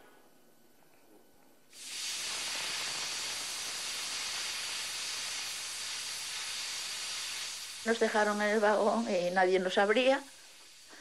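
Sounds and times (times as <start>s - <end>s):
steam locomotive hissing steam: 1.8s - 11.0s.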